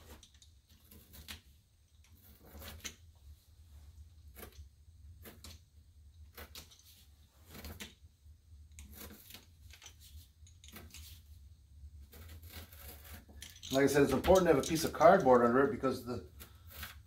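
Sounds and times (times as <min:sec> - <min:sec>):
pounce wheel perforating paper: 0:12.0 - 0:15.2.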